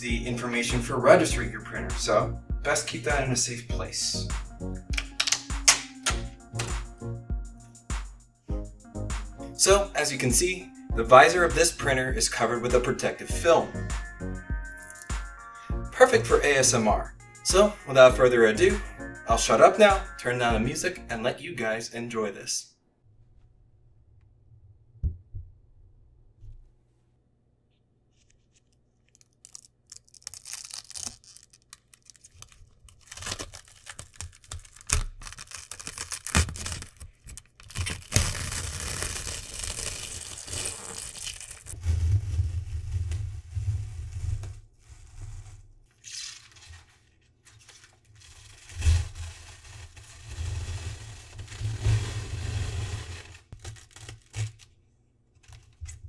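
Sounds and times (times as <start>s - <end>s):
plastic film peeling: 14.8s - 15.1s, 28.1s - 56.0s.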